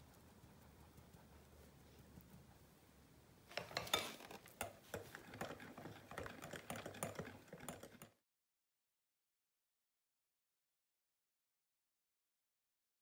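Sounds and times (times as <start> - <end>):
hand mixer beaters clicking on glass bowl: 3.5 - 8.2.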